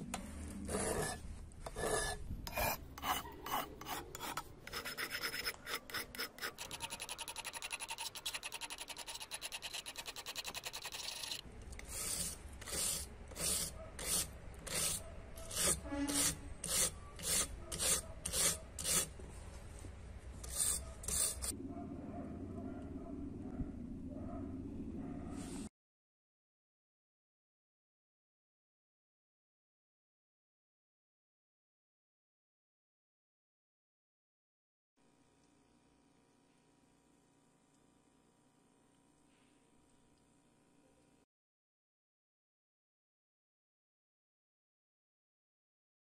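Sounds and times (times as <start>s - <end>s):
hand file rasping on steel: 0.7s - 19.2s, 20.4s - 21.5s.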